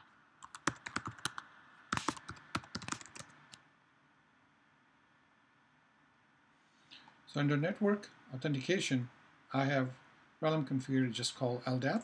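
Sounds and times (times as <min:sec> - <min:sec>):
keyboard typing: 0:00.4 - 0:03.6.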